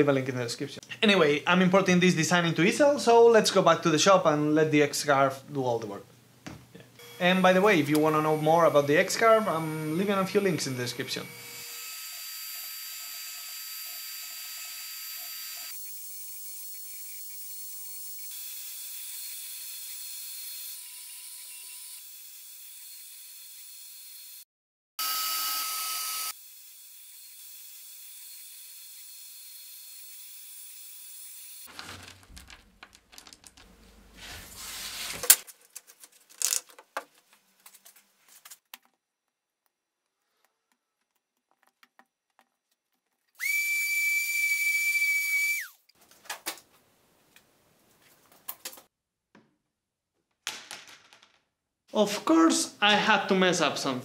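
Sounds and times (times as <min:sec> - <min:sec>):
router spindle whining: 0:07.0 - 0:18.3, 0:43.4 - 0:45.7
rustling and clicks of pieces: 0:31.7 - 0:43.4, 0:45.9 - 0:49.5, 0:50.2 - 0:51.5.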